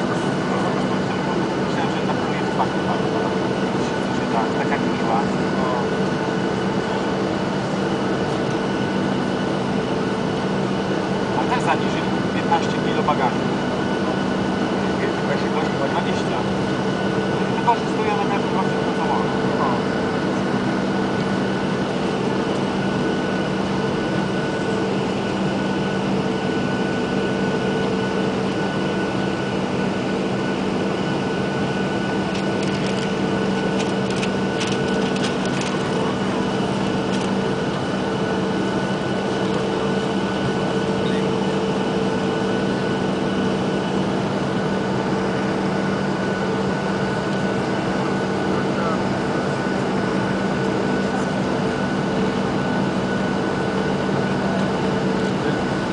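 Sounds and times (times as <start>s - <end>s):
jet engine drone in cabin: 0.0s - 55.9s.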